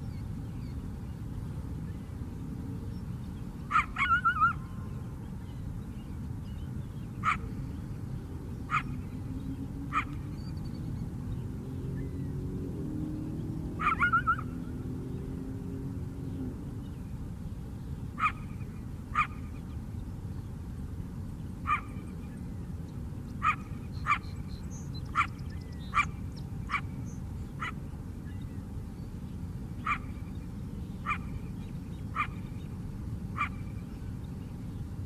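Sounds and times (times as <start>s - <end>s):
low background noise: 0.0s - 35.0s
coyote barking and yipping: 3.7s - 4.7s, 7.2s - 7.5s, 8.7s - 9.0s, 9.9s - 10.2s, 13.8s - 14.6s, 18.2s - 19.5s, 21.6s - 22.1s, 23.4s - 24.4s, 25.1s - 27.0s, 27.6s - 27.8s, 29.8s - 30.2s, 31.0s - 31.4s, 32.1s - 32.5s, 33.3s - 33.7s.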